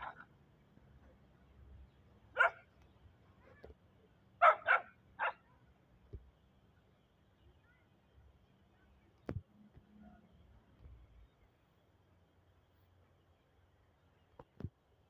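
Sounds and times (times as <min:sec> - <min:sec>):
small dogs barking: 0:00.0 - 0:00.3, 0:02.3 - 0:02.7, 0:04.4 - 0:05.6.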